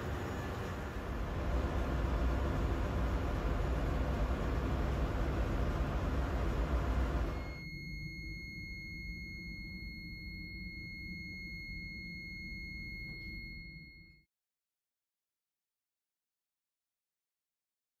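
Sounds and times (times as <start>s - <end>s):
loud engine-room machinery: 0.0s - 7.6s
low machinery hum: 0.0s - 14.0s
high-pitched alarm buzzer: 7.3s - 14.2s.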